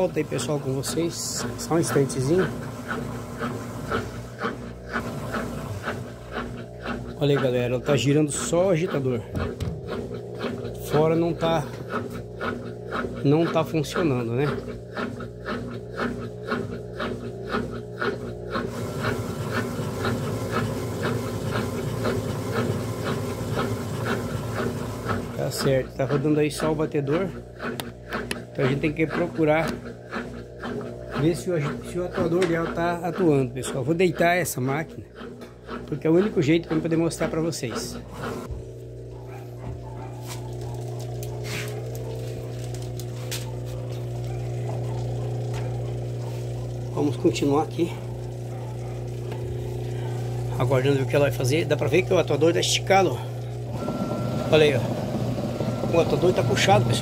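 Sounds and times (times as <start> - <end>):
washing machine motor hum: 0.0 - 57.0
loud repeated scraping: 35.2 - 38.5.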